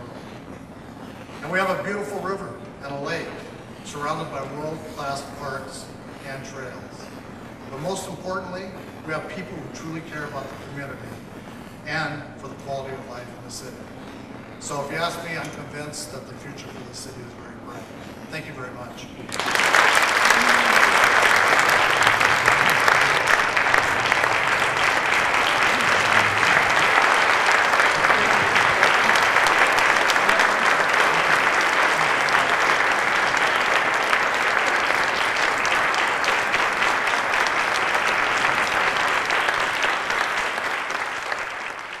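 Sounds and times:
audience applauding: 19.3s - 42.0s.

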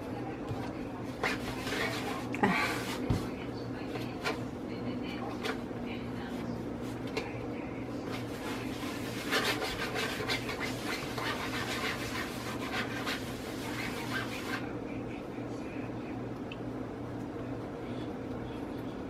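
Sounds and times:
steady low hum: 0.0s - 19.0s
hands rubbing dough: 0.4s - 4.4s, 6.2s - 14.6s.

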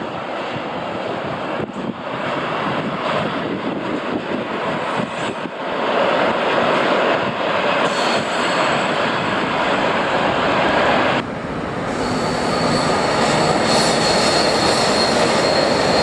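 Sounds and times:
freight train wheels rumbling: 6.1s - 16.0s.

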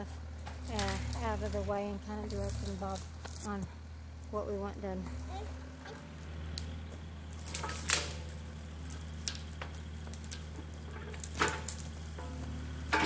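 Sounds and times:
diesel engine droning: 0.0s - 13.0s
twigs crackling and snapping: 0.4s - 3.6s, 5.9s - 13.0s.

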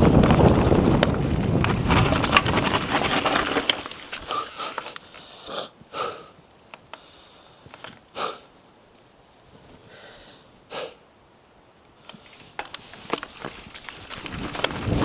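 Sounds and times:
person breathing hard: 4.2s - 6.4s, 7.0s - 8.5s, 9.8s - 11.0s.

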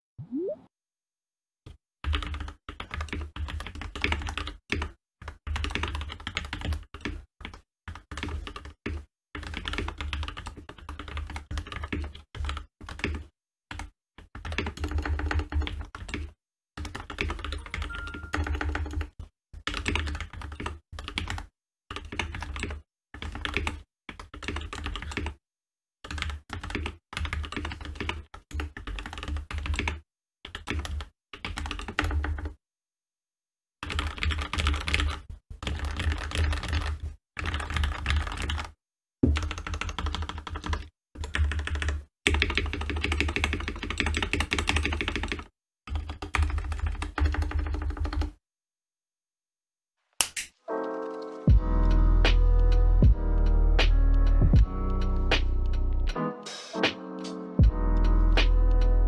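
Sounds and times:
fast typing on mechanical keyboard: 2.0s - 25.4s, 26.0s - 32.6s, 33.8s - 48.4s.

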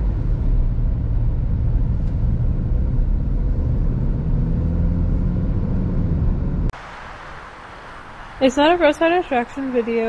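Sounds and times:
car engine and tyre rumble: 0.0s - 10.0s.

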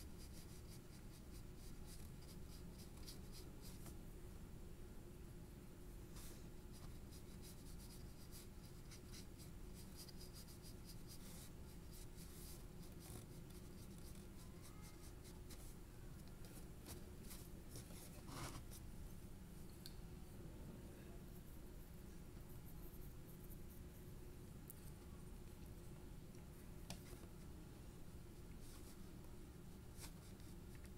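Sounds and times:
low steady hum: 0.0s - 30.9s
pencil scratching on paper: 6.7s - 15.7s.

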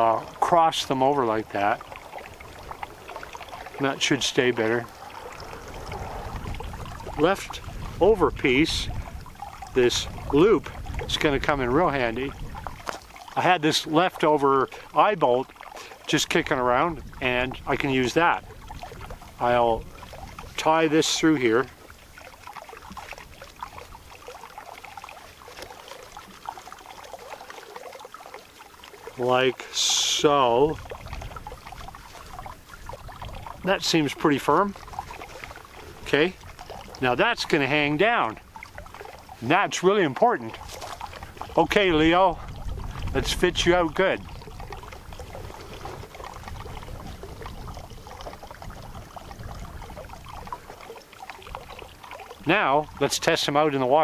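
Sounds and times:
wind rumbling on microphone: 0.0s - 13.3s, 14.2s - 27.2s, 29.2s - 53.3s
small scraping ticks: 12.8s - 13.1s, 40.5s - 41.4s
strap rustling: 40.6s - 41.2s.

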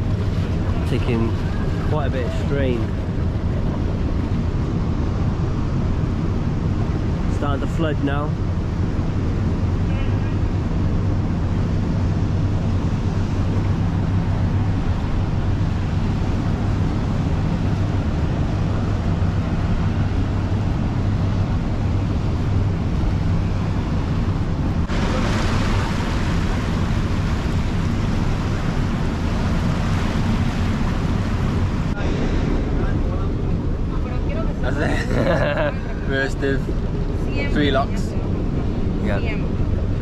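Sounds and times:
low engine hum: 0.0s - 40.0s
water churning and rushing: 0.0s - 40.0s.

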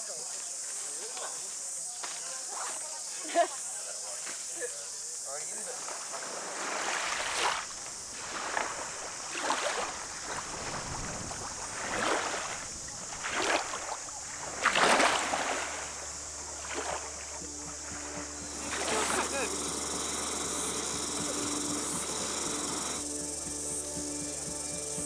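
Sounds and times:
steady high hiss: 3.3s - 25.0s
water splashing in surges: 5.7s - 23.0s.

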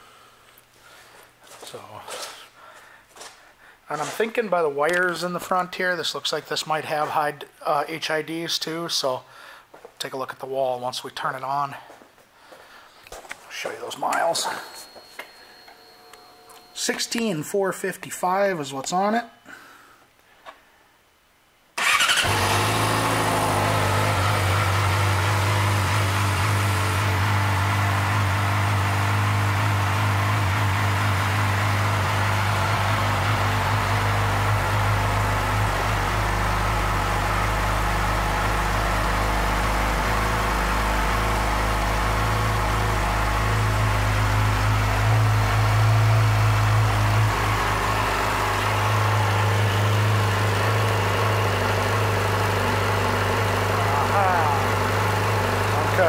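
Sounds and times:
motorcycle engine idling: 21.8s - 56.0s.

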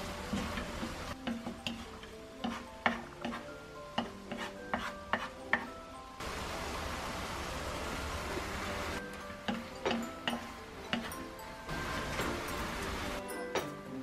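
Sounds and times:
spatula scraping a wok: 0.4s - 5.7s.

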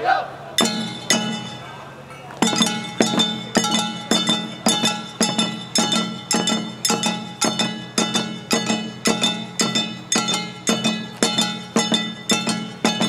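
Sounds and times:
hand gongs clanging: 0.6s - 13.0s
taiko drums: 0.6s - 13.0s.

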